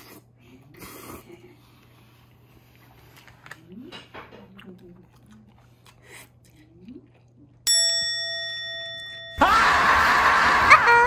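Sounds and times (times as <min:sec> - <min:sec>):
chime ding: 0:07.7 - 0:09.4
high ringing tones: 0:07.7 - 0:10.0.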